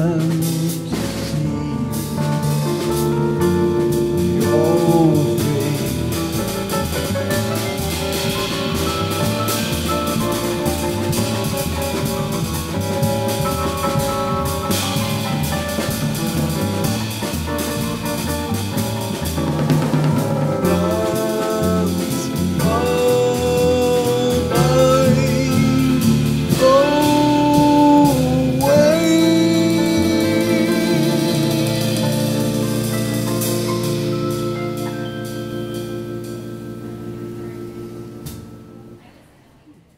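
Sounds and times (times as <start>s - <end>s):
man singing: 0.0s - 7.1s, 20.6s - 32.7s
jazz trio playing: 0.0s - 39.1s.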